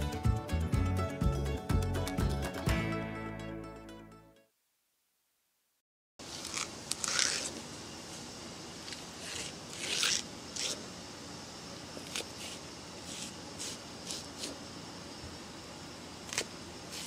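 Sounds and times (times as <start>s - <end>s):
knife cutting onion on board: 9.1s - 10.9s.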